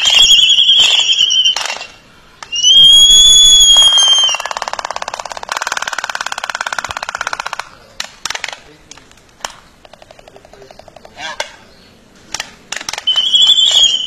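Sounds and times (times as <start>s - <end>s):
albatross whistled call: 0.0s - 4.7s, 12.9s - 14.0s.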